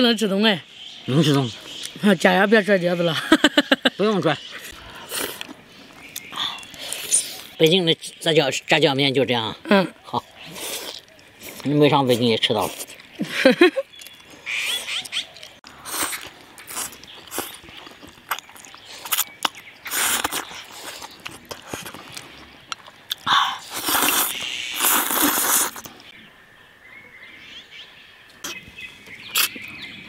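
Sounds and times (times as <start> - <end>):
noodles slurped and chewed: 4.7 - 7.6, 10.4 - 13.2, 13.9 - 26.1
faint bird calls: 13.9 - 15.6
wet mouth clicks: 18.3 - 26.1.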